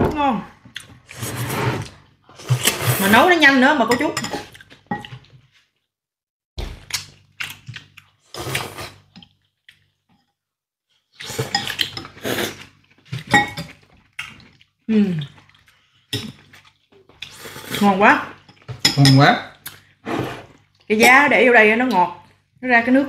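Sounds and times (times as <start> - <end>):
cutlery clinking on ceramic bowls: 3.9 - 5.2, 18.4 - 19.4.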